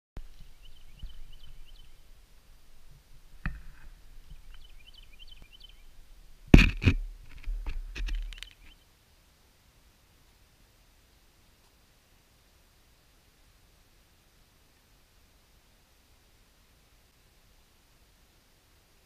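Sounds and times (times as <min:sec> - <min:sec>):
camera handling knocks and rubbing: 0:06.6 - 0:08.6.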